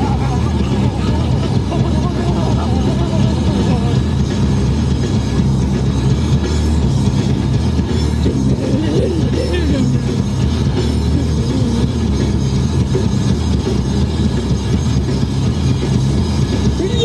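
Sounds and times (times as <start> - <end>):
music playing: 0.0 - 17.0
person singing: 11.1 - 12.1.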